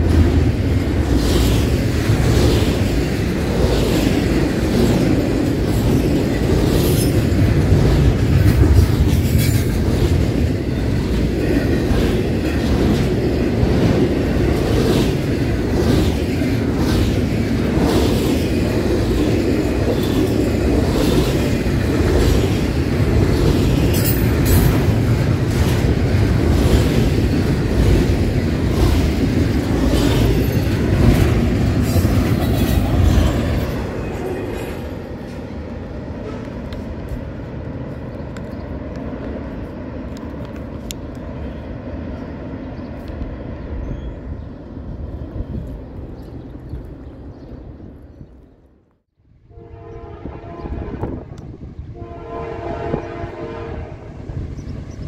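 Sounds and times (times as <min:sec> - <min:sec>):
wheels clicking over rail joints: 0:00.0 - 0:37.2
train rumbling past: 0:00.0 - 0:55.0.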